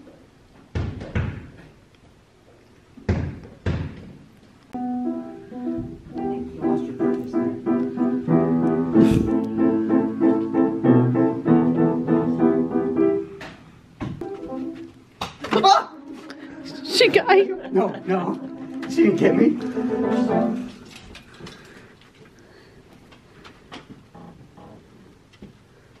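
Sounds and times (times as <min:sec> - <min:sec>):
piano-like keyboard music: 0:04.8 - 0:13.4, 0:14.2 - 0:15.0, 0:16.0 - 0:20.9.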